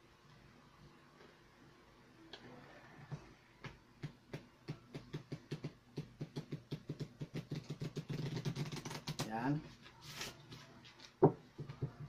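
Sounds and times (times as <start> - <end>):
cards riffle-shuffled: 6.4 - 9.3.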